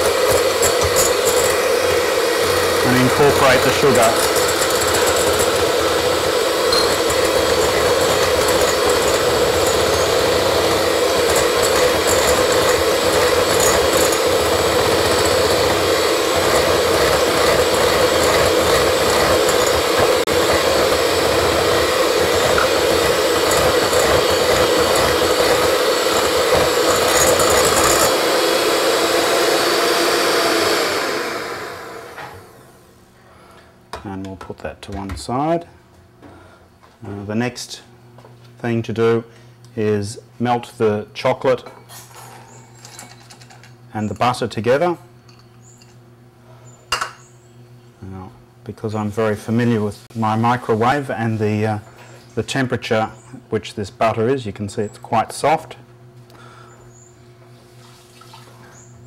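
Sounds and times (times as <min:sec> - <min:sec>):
electric hand mixer whisking: 0:00.0 - 0:32.8.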